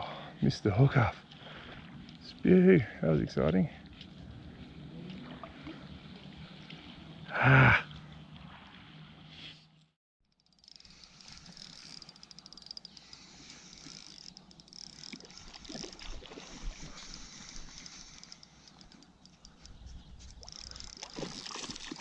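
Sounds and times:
water lapping on beach: 0:00.9 - 0:09.7, 0:13.0 - 0:22.0.

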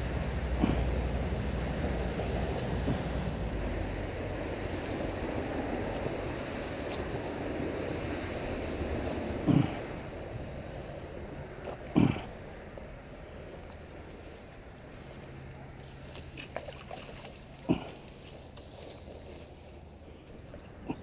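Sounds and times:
wind on microphone: 0:00.0 - 0:12.5.

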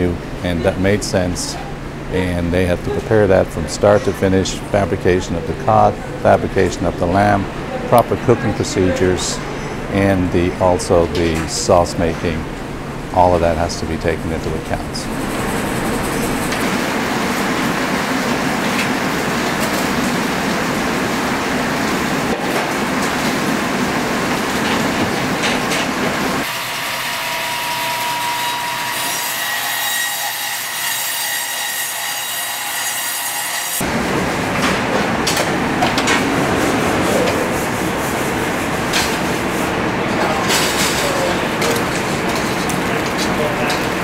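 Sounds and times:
kitchen roar: 0:00.0 - 0:44.0
kitchen utensils clattering: 0:40.1 - 0:44.0.

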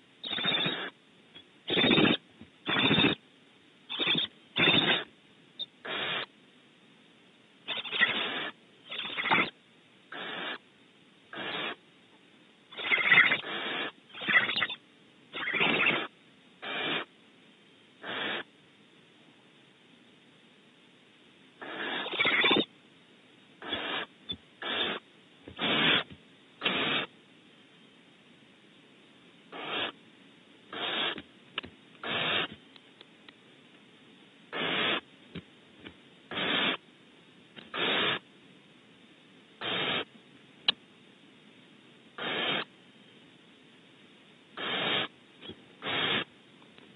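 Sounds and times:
owls hissing calls: 0:00.2 - 0:01.0, 0:01.7 - 0:03.2, 0:03.9 - 0:05.1, 0:05.8 - 0:06.3, 0:07.7 - 0:10.6, 0:11.3 - 0:11.8, 0:12.7 - 0:17.1, 0:18.0 - 0:18.5, 0:21.6 - 0:22.7, 0:23.6 - 0:25.0, 0:25.6 - 0:27.1, 0:29.5 - 0:30.0, 0:30.7 - 0:31.2, 0:32.0 - 0:32.6, 0:34.5 - 0:35.0, 0:36.3 - 0:36.8, 0:37.7 - 0:38.2, 0:39.6 - 0:40.1, 0:42.2 - 0:42.7, 0:44.6 - 0:45.1, 0:45.8 - 0:46.3.

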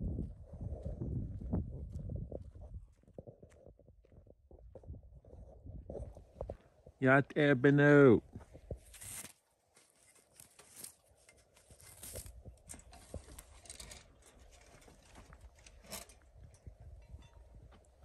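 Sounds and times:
footsteps on dry straw: 0:08.3 - 0:13.6.

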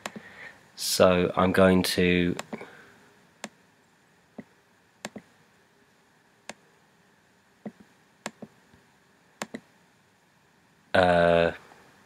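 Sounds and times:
mouse button clicks: 0:05.0 - 0:05.3, 0:09.4 - 0:09.6.

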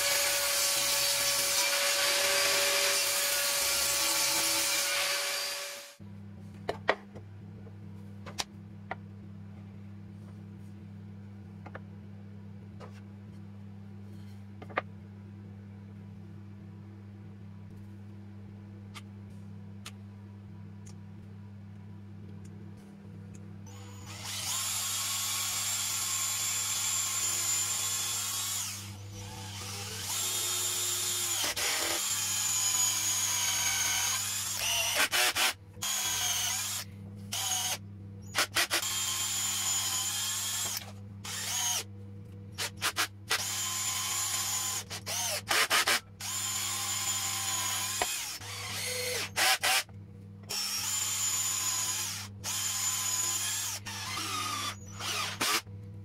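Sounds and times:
cordless drill motor whining: 0:23.7 - 0:37.8, 0:38.8 - 0:41.8, 0:43.4 - 0:49.8, 0:50.5 - 0:55.6.

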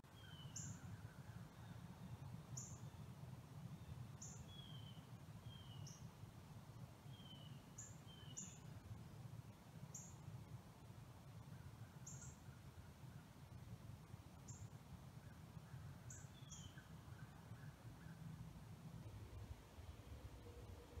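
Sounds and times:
small birds chirping: 0:00.1 - 0:03.0, 0:03.8 - 0:06.1, 0:07.1 - 0:08.8, 0:11.5 - 0:12.6, 0:14.4 - 0:18.3
steady low rumble: 0:17.0 - 0:21.0.

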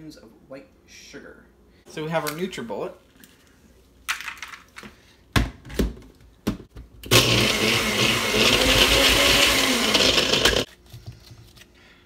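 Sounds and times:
blender motor grinding ice: 0:07.1 - 0:10.7.

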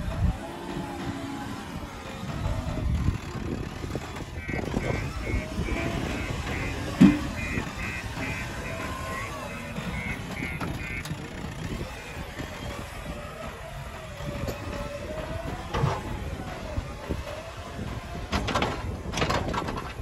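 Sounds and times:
diesel backhoe engine running: 0:00.0 - 0:20.0
knocks: 0:06.5 - 0:07.6.

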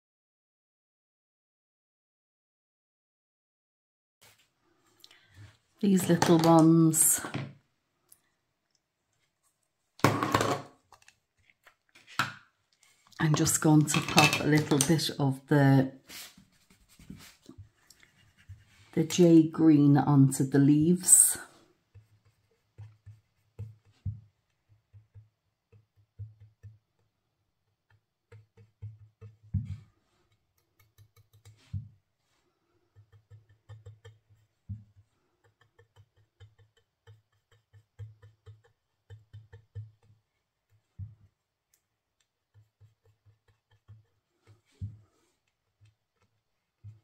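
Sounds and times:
brush tapping on cardstock: 0:21.9 - 0:27.2, 0:27.8 - 0:32.0, 0:32.9 - 0:41.4, 0:42.2 - 0:45.2.

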